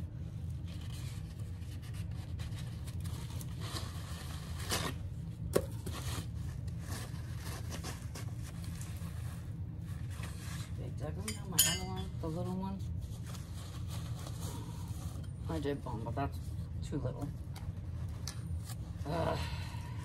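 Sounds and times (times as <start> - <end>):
steady low hum: 0.0 - 20.0
scraping and rustling of supplies: 5.6 - 20.0.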